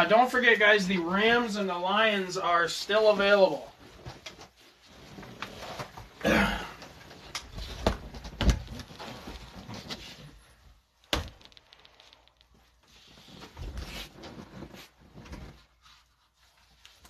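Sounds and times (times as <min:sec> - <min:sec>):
cardboard rustling and sliding: 0:07.5 - 0:10.6, 0:12.7 - 0:17.0.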